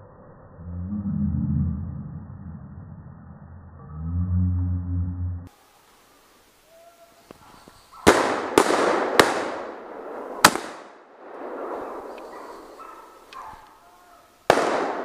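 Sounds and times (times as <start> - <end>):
rifle shots echoing: 8.0 - 13.6, 14.5 - 15.0.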